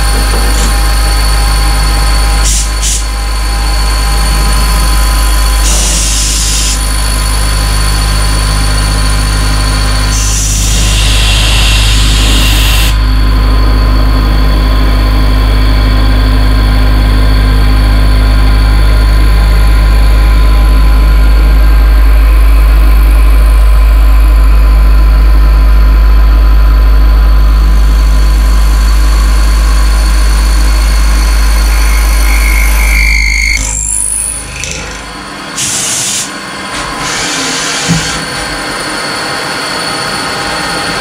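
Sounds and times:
milling machine humming: 0.0s - 41.0s
thin whining tones: 30.4s - 35.2s.

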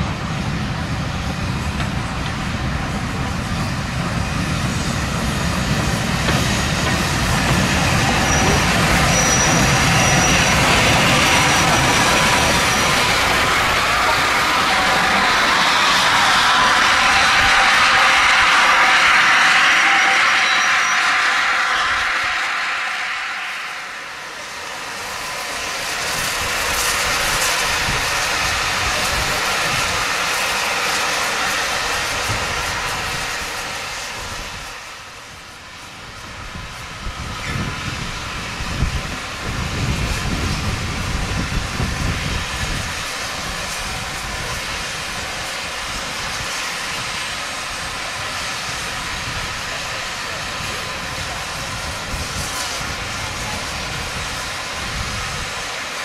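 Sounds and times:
train clanking: 0.0s - 35.5s
steam hissing: 0.0s - 56.0s
train rumbling on rails: 0.0s - 56.0s.

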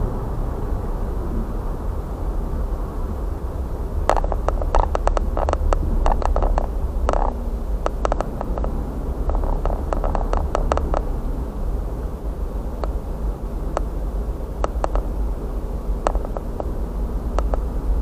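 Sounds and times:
road and engine rumble: 0.0s - 18.0s
sharp ticks: 4.0s - 11.2s, 12.8s - 13.0s, 13.7s - 14.0s, 14.6s - 15.2s, 16.0s - 17.7s.

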